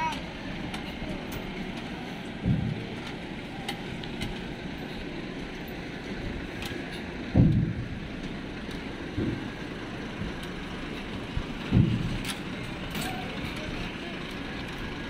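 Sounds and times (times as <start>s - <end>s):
truck engine running low: 0.0s - 15.0s
low thumps: 2.4s - 3.0s, 7.2s - 8.2s, 11.3s - 12.2s.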